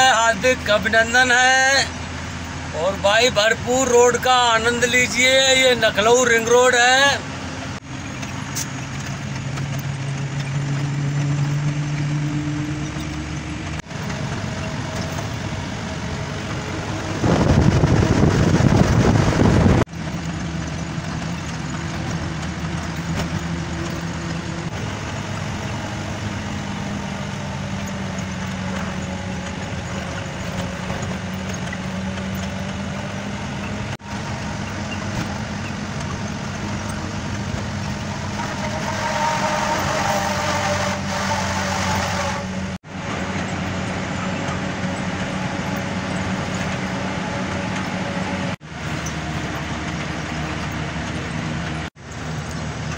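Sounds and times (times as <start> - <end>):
road noise: 0.0 - 52.9
truck engine running: 0.0 - 52.9
loud rushing noise: 37.5 - 42.8.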